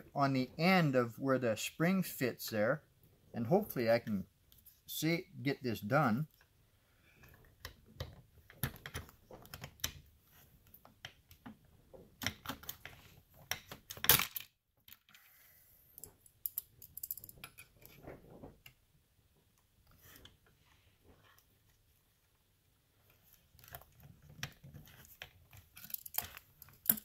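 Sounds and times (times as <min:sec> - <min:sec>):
metallic clicks and scraping: 0:23.0 - 0:27.0.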